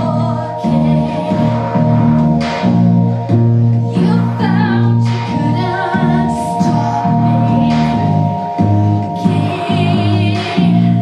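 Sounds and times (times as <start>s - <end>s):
woman singing into microphone: 0.0s - 2.2s, 3.8s - 11.0s
low bass line: 0.0s - 11.0s
sustained drone tones: 0.0s - 11.0s.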